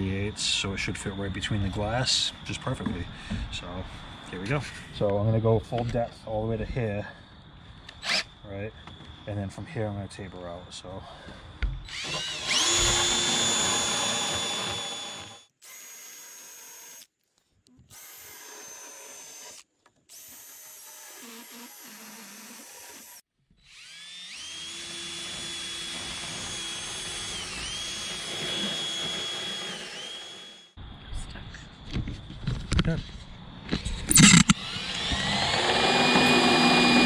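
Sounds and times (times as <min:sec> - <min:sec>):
cordless drill whining: 0:07.9 - 0:08.3, 0:11.8 - 0:17.1, 0:17.9 - 0:30.8, 0:34.0 - 0:37.0.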